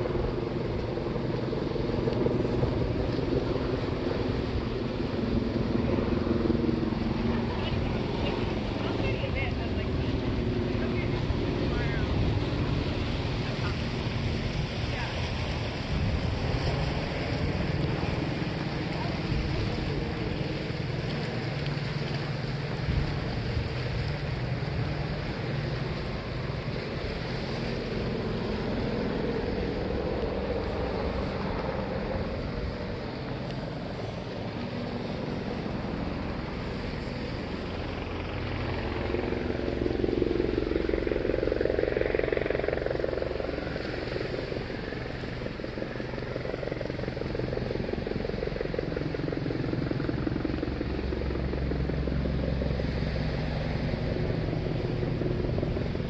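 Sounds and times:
helicopter rotor chopping: 0:00.0 - 0:56.0.

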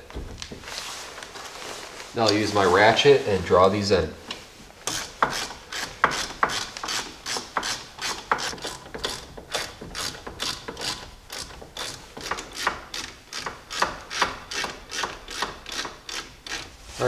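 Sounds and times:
hand ratchet clicking: 0:04.8 - 0:16.7.

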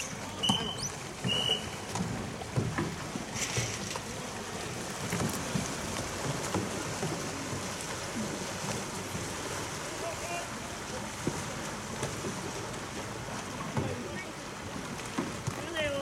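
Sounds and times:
knocks of paddles and boats: 0:00.0 - 0:16.0
paddles splashing water: 0:00.0 - 0:16.0
short high whistle: 0:00.4 - 0:01.8.

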